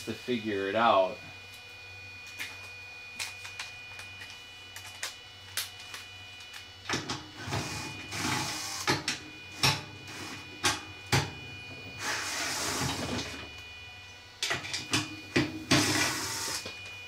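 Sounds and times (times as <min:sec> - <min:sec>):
cordless drill whirring: 0:07.4 - 0:10.6, 0:15.7 - 0:17.0.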